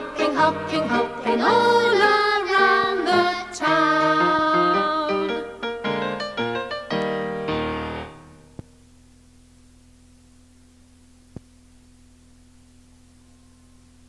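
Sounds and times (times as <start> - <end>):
children's song backing music: 0.0 - 6.3
steady low hum: 7.6 - 14.0.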